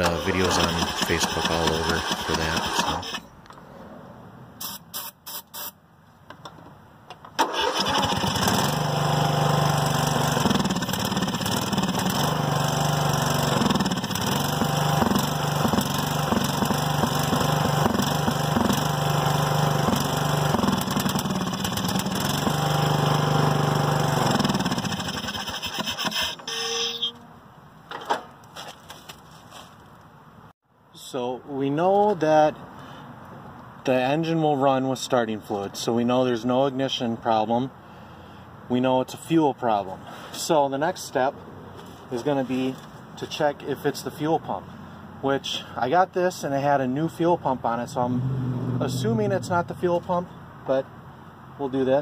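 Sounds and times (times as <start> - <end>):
mower engine running: 0.0 - 3.2, 7.4 - 26.3.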